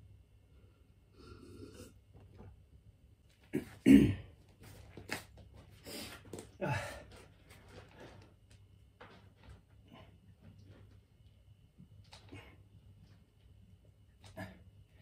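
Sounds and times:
man breathing heavily: 5.8 - 7.2
man grunting: 6.6 - 7.0.

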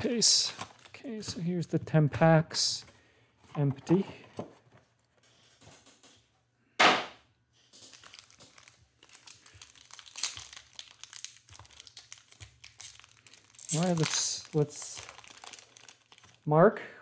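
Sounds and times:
foil wrapper crinkling and tearing: 0.4 - 1.0, 7.7 - 16.5.

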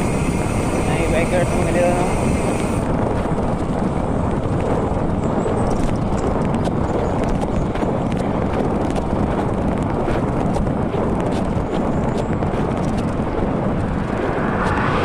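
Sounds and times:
bike clicks and rattles: 0.0 - 13.8
wind on microphone: 0.0 - 15.0.

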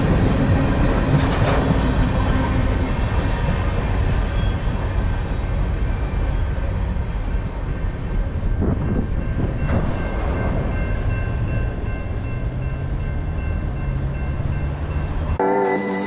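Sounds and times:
train wheels rumbling on rail: 0.0 - 15.4
music: 15.3 - 16.0.

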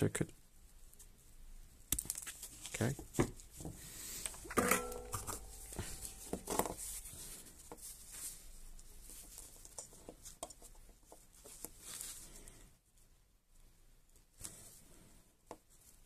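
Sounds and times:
rustling with light clicks: 4.2 - 14.8.

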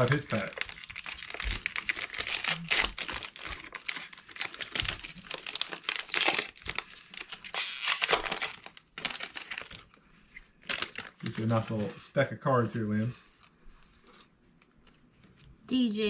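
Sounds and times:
foil wrapper tearing and crinkling: 0.0 - 10.0, 10.6 - 11.8.

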